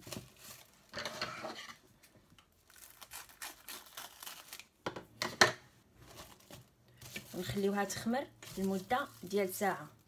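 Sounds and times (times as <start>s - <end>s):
cling film crinkling: 2.4s - 4.8s, 8.4s - 10.0s.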